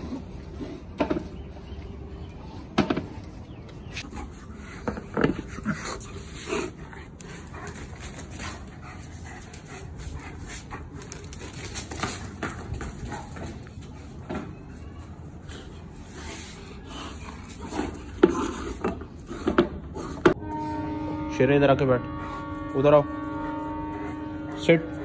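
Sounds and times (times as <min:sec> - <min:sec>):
dog panting: 0:04.0 - 0:12.1.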